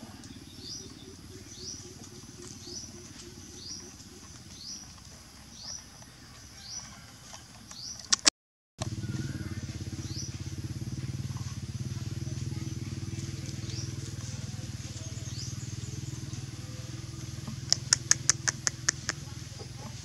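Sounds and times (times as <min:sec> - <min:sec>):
bird chirps: 0:00.0 - 0:06.9
engine humming: 0:00.0 - 0:08.0, 0:08.8 - 0:20.0
sharp clicks: 0:07.7 - 0:08.3, 0:17.7 - 0:19.2.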